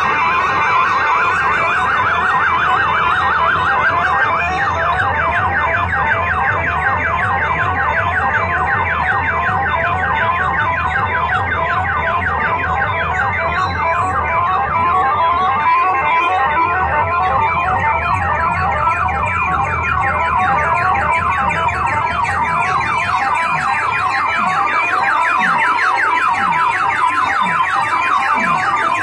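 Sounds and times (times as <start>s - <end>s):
electronic siren warble: 0.0s - 29.0s.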